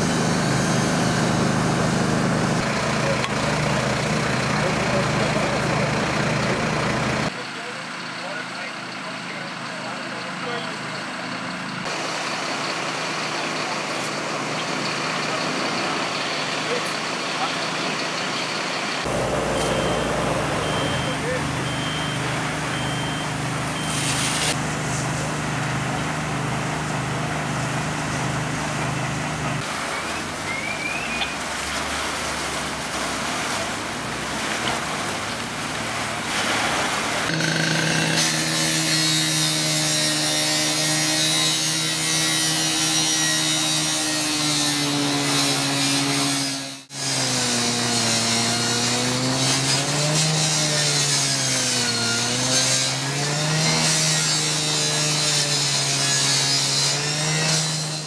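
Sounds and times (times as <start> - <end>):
power saw cutting sheet metal: 0.0 - 2.7, 19.0 - 24.6, 37.1 - 58.0
steady engine hum: 18.9 - 31.1.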